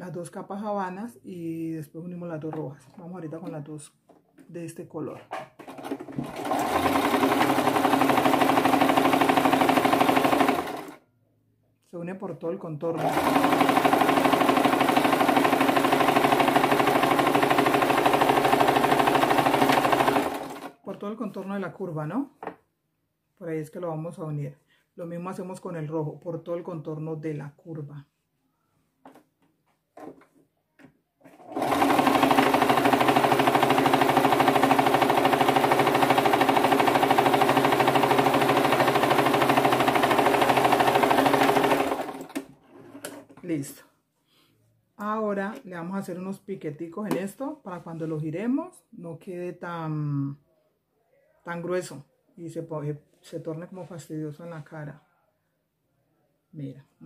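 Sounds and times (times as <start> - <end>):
sewing machine running: 5.6 - 11.0, 13.0 - 20.8, 31.2 - 43.2.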